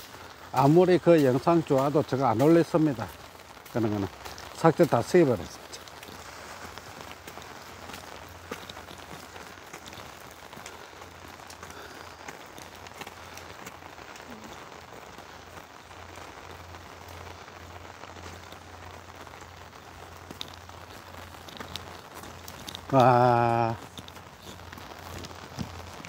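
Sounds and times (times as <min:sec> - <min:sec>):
heavy rain: 0:00.0 - 0:26.0
raindrops hitting an umbrella: 0:00.0 - 0:26.0.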